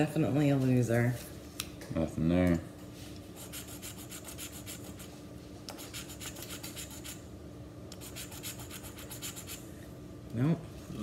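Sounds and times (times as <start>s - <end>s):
lottery ticket being scratched: 3.4s - 7.2s, 8.0s - 9.6s.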